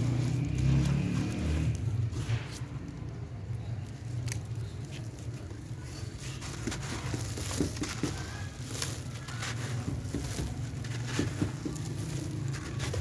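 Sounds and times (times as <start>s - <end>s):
sand-cement chunk crumbling: 0.0s - 13.0s
crumbs pouring onto pile: 5.6s - 13.0s.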